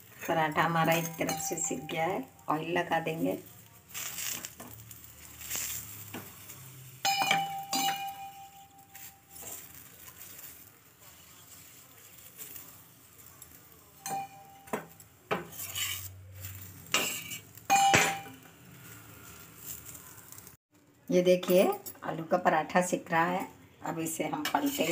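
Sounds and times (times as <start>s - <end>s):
spoon clinking on hot griddle: 0.0s - 2.4s, 4.0s - 10.6s, 13.4s - 18.5s, 24.4s - 24.9s
oil sizzling: 0.0s - 20.6s, 24.4s - 24.9s.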